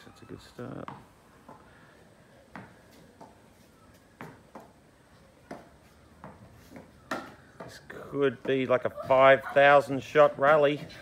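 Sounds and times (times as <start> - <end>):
tennis ball knocks: 5.4 - 8.8.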